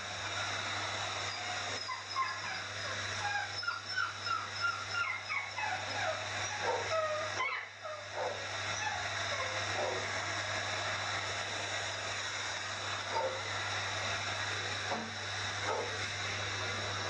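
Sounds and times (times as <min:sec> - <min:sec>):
hair dryer rushing: 0:00.0 - 0:17.0
dog whimpering and yipping: 0:01.3 - 0:10.0.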